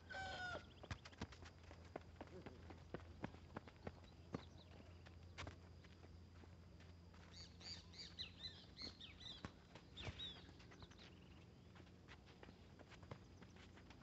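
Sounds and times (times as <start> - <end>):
footsteps on dirt: 0.2 - 14.0
bird chirping: 7.3 - 11.5.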